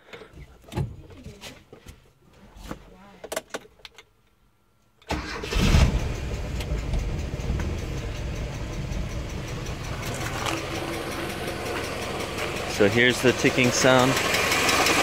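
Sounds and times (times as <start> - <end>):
engine starting and idling: 5.0 - 15.0.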